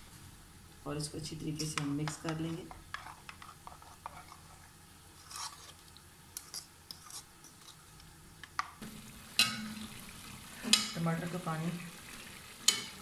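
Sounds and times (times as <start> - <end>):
metal spoon scraping a bowl: 5.2 - 5.8, 6.4 - 7.8.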